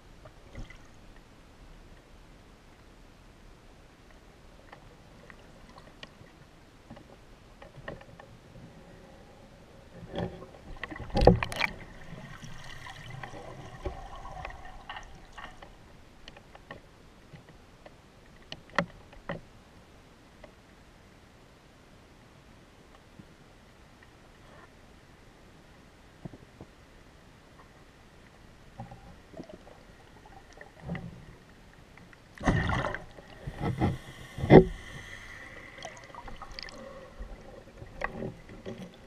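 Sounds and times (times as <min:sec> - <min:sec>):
faint hum with steady tones: 0:00.0 - 0:39.0
faint underwater clicks: 0:04.0 - 0:08.4, 0:10.0 - 0:19.5, 0:20.4 - 0:20.7, 0:27.6 - 0:39.0.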